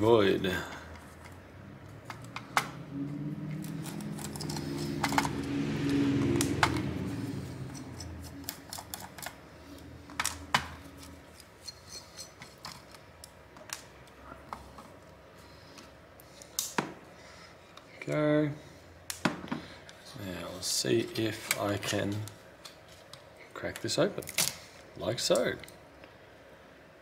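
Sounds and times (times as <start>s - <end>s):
low hum: 0.9s - 11.6s.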